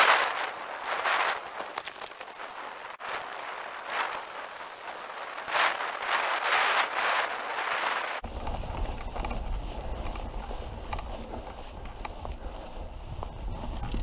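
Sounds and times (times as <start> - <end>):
bike tyres rustling on dirt trail: 0.0 - 14.0
low rumble: 8.2 - 14.0.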